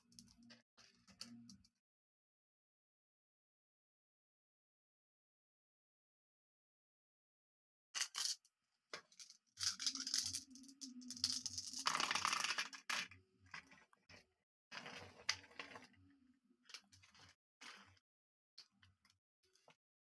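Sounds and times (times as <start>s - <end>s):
glass marbles clicking: 9.2s - 13.1s.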